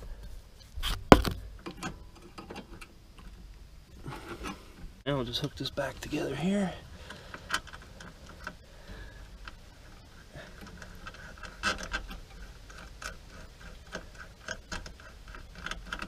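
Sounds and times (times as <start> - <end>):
small metallic clicks and scrapes: 0.0 - 5.6, 7.0 - 16.0.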